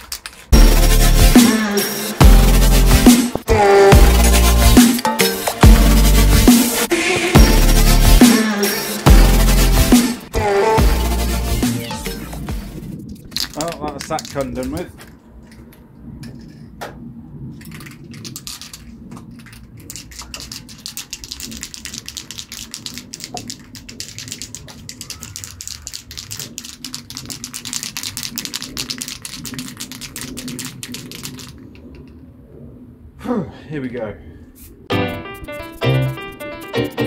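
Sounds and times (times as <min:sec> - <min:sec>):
spray can ball rattling: 0:00.0 - 0:03.5, 0:13.0 - 0:16.6, 0:17.6 - 0:31.8.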